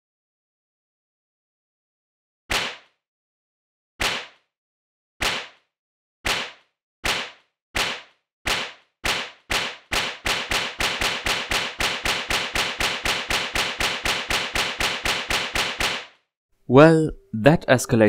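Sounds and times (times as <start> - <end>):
sharp slap-like knocks: 2.5 - 3.0, 4.0 - 4.5, 5.2 - 5.7, 6.3 - 16.2.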